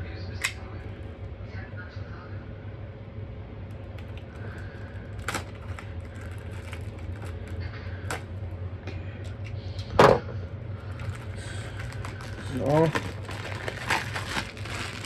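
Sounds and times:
knife peeling plastic wrap: 5.1s - 8.2s, 11.0s - 15.0s.

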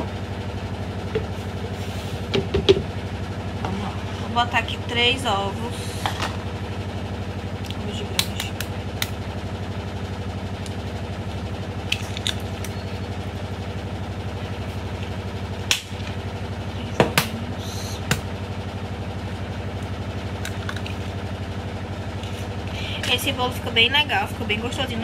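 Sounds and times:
low mechanical hum: 0.0s - 25.0s
eggshells cracking: 11.9s - 12.8s.

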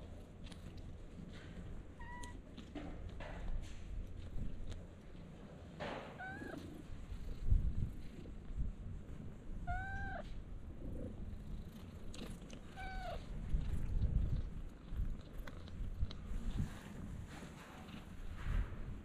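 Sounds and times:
cat meowing: 2.0s - 2.4s, 6.2s - 6.7s, 9.6s - 10.3s, 12.7s - 13.3s.

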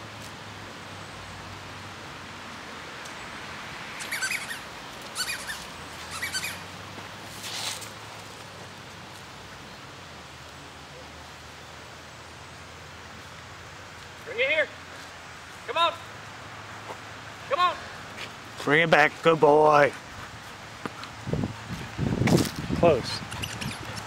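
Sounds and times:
outdoor background noise: 0.0s - 24.0s
high-pitched animal calls: 4.0s - 6.7s, 23.2s - 24.0s.

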